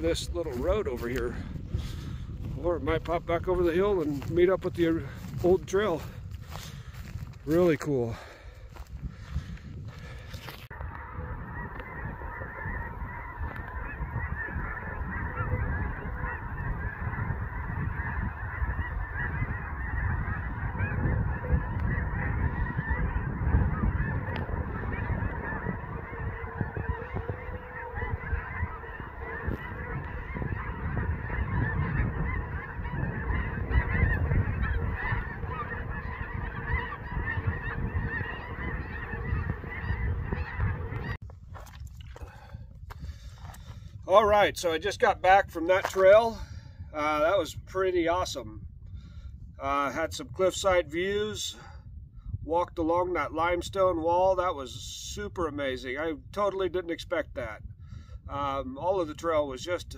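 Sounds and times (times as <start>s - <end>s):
geese honking: 0.0s - 48.5s, 49.6s - 51.6s, 58.3s - 59.9s.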